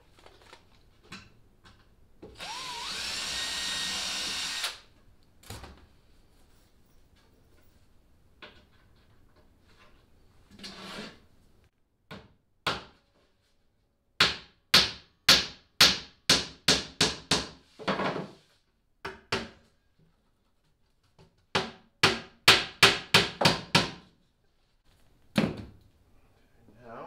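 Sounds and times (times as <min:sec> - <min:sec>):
hammer striking nails into wood: 0:14.2 - 0:17.6, 0:21.6 - 0:24.0.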